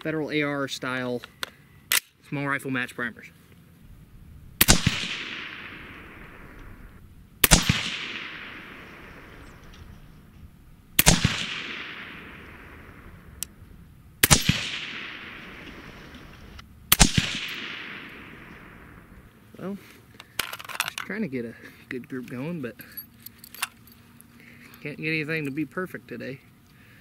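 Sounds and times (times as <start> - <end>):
gunshot echo: 4.6 - 10.1, 11.0 - 13.5, 14.2 - 19.3
suppressed rifle shots: 4.6 - 13.6, 14.2 - 19.3.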